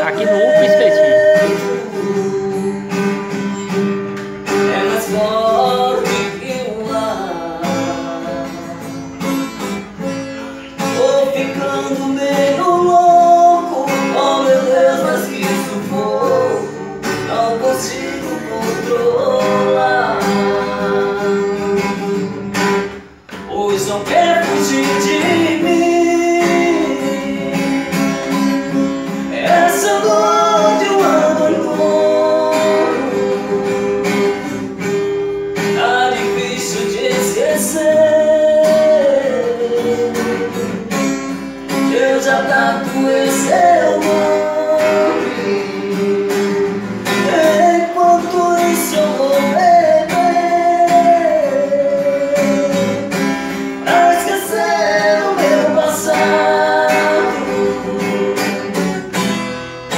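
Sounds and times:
person singing: 0.0 - 3.2, 29.2 - 34.8, 35.8 - 41.0, 41.7 - 59.1
acoustic guitar: 0.0 - 59.9.

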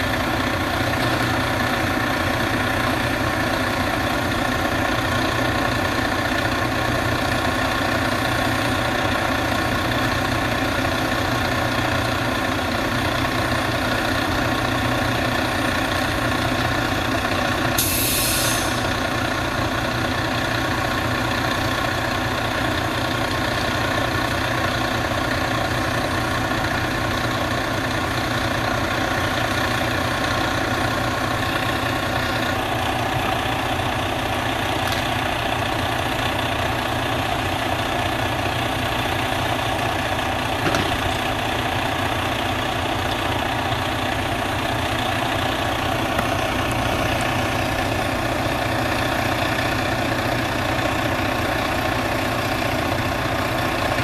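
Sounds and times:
truck engine idling: 0.0 - 54.0
brief hiss: 17.8 - 18.8.

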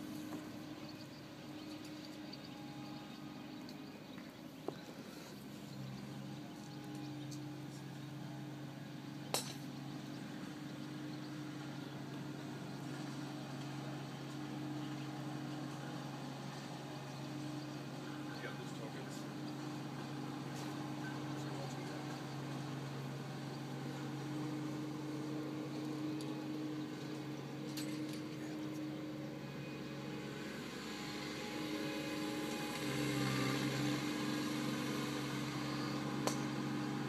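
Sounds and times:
low engine hum: 0.0 - 37.0
golf club striking ball: 9.3 - 9.7, 36.2 - 36.6.

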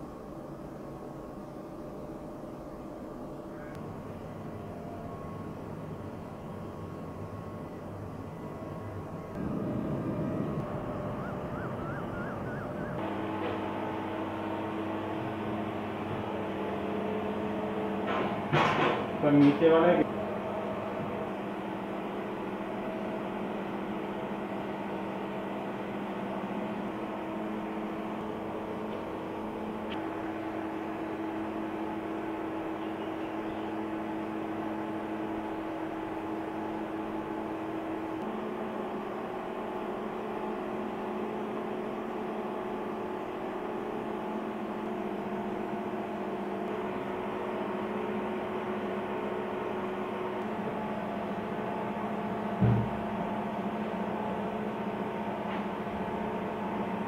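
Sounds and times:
electrical hum with held tones: 0.0 - 57.0
faint whir: 3.4 - 14.0.

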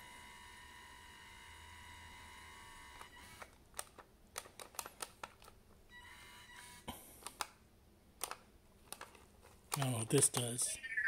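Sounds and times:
plastic remote buttons clicking: 7.2 - 7.6, 8.2 - 10.5.

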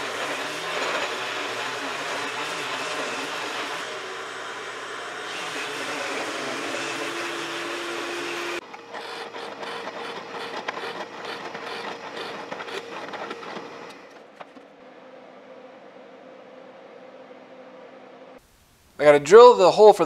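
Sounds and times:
drill press boring into wood: 0.0 - 14.0
power tools rushing noise: 0.0 - 14.4.

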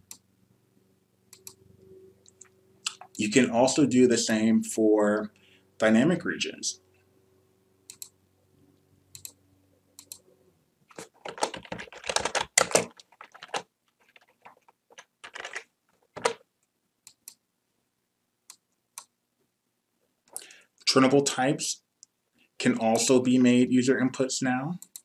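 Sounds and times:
typing on a computer keyboard: 10.9 - 16.4.

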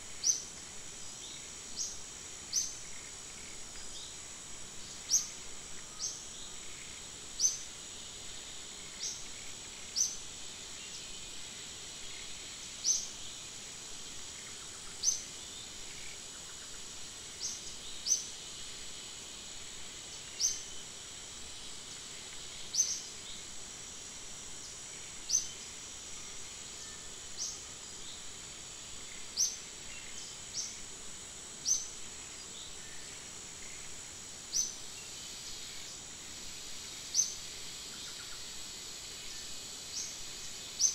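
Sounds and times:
high insect drone: 0.0 - 40.9.

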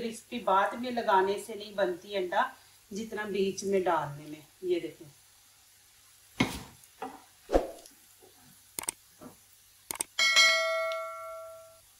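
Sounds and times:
soft swooshes: 7.5 - 7.9
mouse clicks: 8.8 - 9.0, 9.9 - 10.1
bell ding: 10.2 - 11.8.

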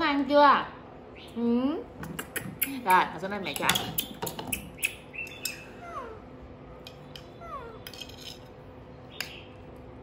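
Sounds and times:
baby monkey calling: 3.8 - 6.4, 7.2 - 7.8.

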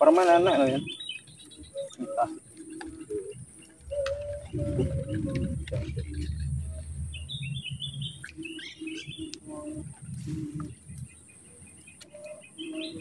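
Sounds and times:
small birds chirping: 0.0 - 13.0
lower bird call pulsing: 0.5 - 13.0.

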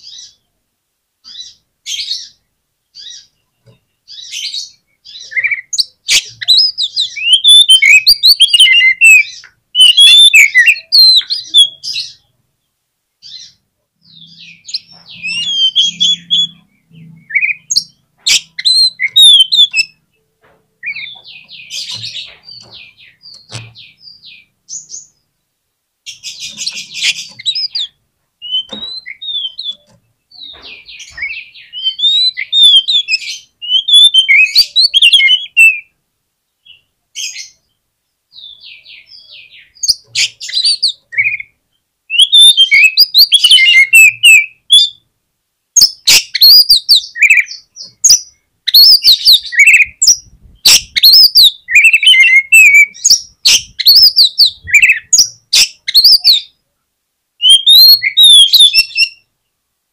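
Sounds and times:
songbird whistling and chattering: 4.1 - 12.3, 13.2 - 20.0, 20.8 - 25.2, 26.1 - 35.9, 38.4 - 41.5, 42.1 - 45.0, 45.8 - 56.5, 57.4 - 59.3.

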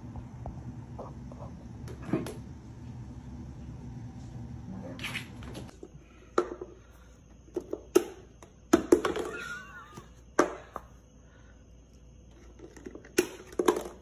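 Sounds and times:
cup knocking and clattering on floor: 12.6 - 14.0.

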